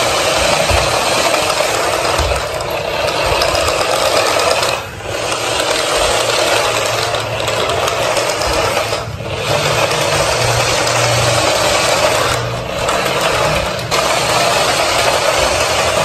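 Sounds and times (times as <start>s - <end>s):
toy truck motor whirring: 0.0s - 16.0s.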